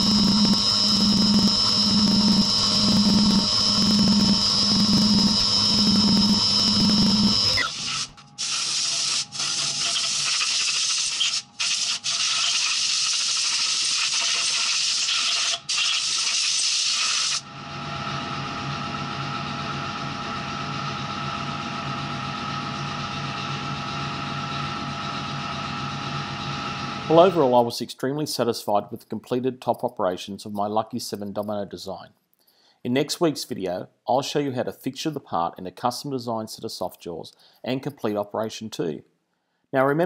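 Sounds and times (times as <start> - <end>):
faint hum: 0.0 - 8.4.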